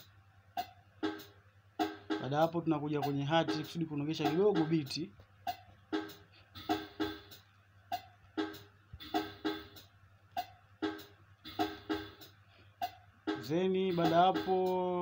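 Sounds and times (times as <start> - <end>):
hi-hat clicks: 0.0 - 15.0
trap drum loop through laptop speakers: 0.0 - 15.0
pitched conga hits: 1.8 - 7.3, 13.3 - 15.0.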